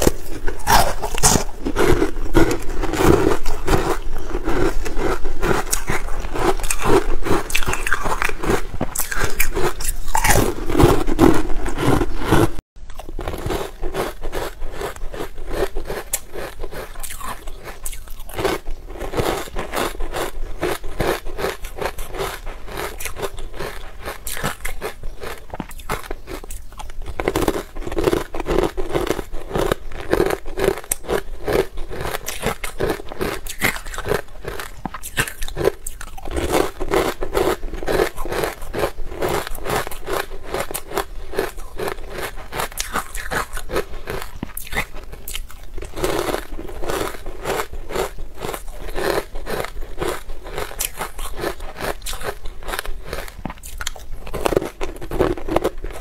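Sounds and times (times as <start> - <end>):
ice being chewed: 0.0 - 56.0.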